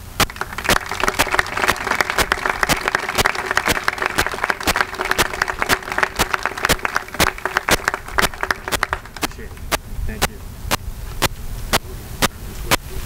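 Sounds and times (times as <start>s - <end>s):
audience applauding: 0.0s - 9.4s
single person clapping: 0.2s - 9.8s.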